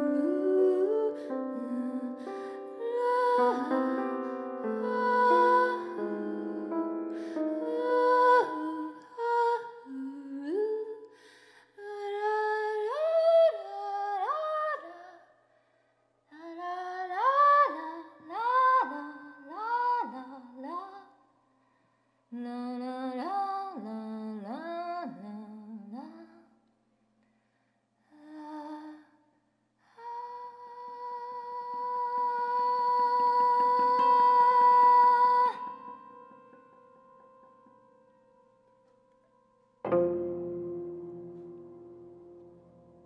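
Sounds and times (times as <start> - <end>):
steady held tone: 33.1 - 43.0.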